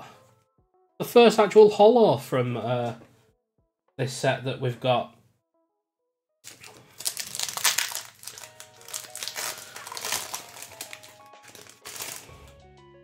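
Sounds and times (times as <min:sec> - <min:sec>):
quiet background music: 0:00.0 - 0:03.3, 0:04.0 - 0:05.3, 0:06.5 - 0:13.0
foil wrapper crinkling: 0:06.5 - 0:12.5.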